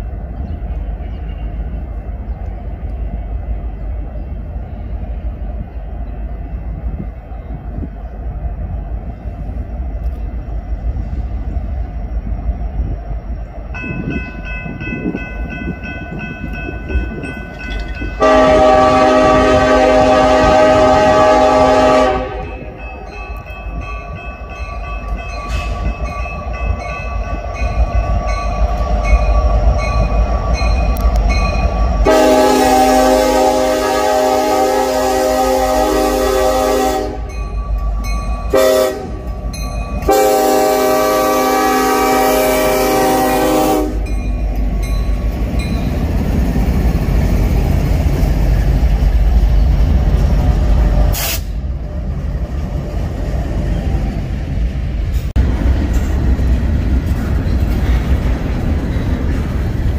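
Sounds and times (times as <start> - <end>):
locomotive engine and wheels rumbling: 0.0 - 59.9
train air horn blasts: 18.2 - 22.8, 32.0 - 37.4, 38.5 - 39.3, 40.0 - 44.1, 51.1 - 51.6.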